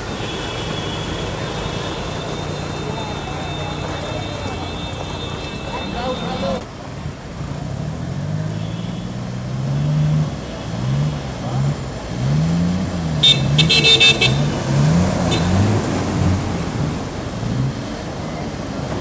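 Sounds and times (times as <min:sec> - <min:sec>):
car horn toots: 0:00.3 - 0:06.6, 0:13.2 - 0:14.6
water rushing and splashing: 0:14.3 - 0:19.0.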